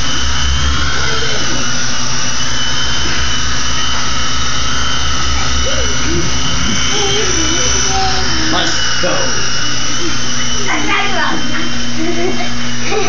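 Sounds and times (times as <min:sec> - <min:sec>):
electric motor whine: 0:00.0 - 0:13.0
rotor blades thrumming: 0:00.0 - 0:13.0.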